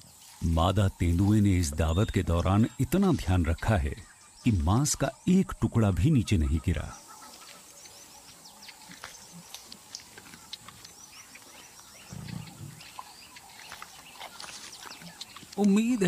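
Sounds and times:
birds chirping: 0.0s - 16.0s
quiet bush ambience: 0.0s - 16.0s
leopard growling: 6.9s - 15.8s.

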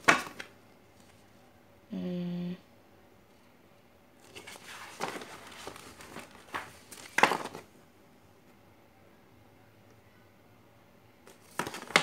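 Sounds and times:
photo prints rustling and crackling: 0.0s - 1.4s, 4.2s - 7.8s, 11.2s - 12.0s.

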